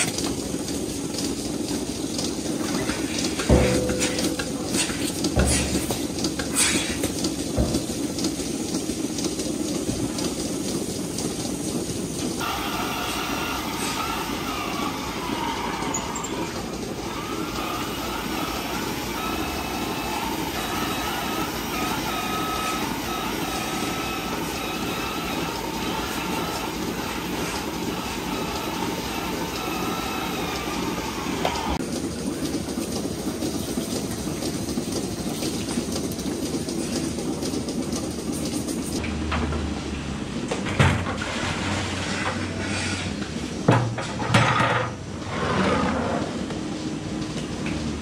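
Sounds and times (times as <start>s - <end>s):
milking machinery running: 0.0s - 48.0s
metal clanking: 2.8s - 8.0s.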